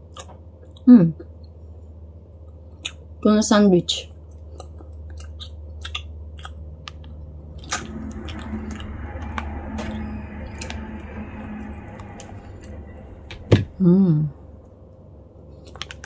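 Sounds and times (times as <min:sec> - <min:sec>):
steady low hum: 0:00.0 - 0:16.0
wet chewing mouth sounds: 0:04.4 - 0:07.2.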